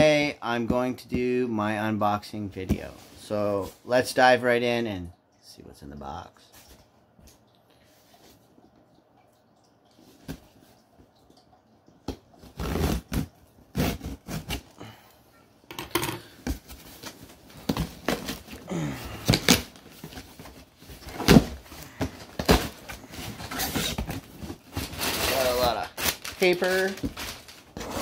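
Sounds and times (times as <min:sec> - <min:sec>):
rustling and scraping: 0:16.0 - 0:28.0.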